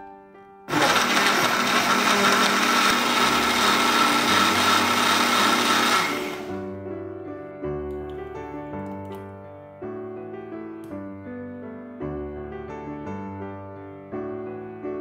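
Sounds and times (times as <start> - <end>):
soft piano music: 0.0 - 0.7, 6.5 - 15.0
blender motor whining: 0.7 - 6.6.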